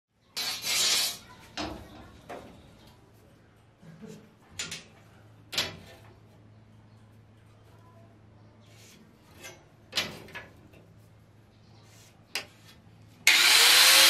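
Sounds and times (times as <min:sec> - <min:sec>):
steel bar scraping on metal bench: 0:00.4 - 0:01.3.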